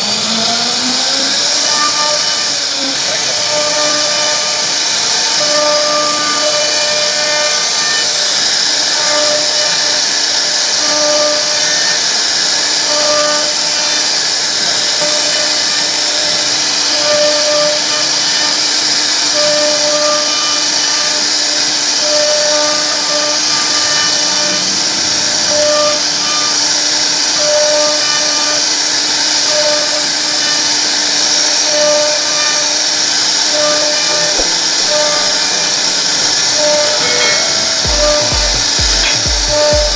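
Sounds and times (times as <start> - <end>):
router bit whining in wood: 0.0 - 39.9
short humming tones: 0.0 - 39.9.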